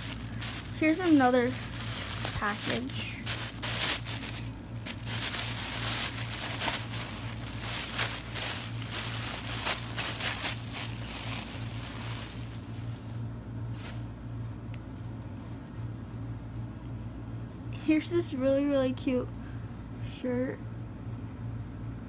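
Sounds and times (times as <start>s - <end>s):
plastic bag crinkling: 0.0s - 13.2s, 13.8s - 14.1s
steady low hum: 0.0s - 22.0s.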